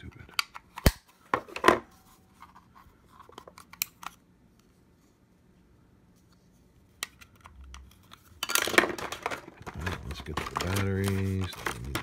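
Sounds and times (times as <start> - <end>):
plastic cover clicks and scrapes: 8.5 - 12.0.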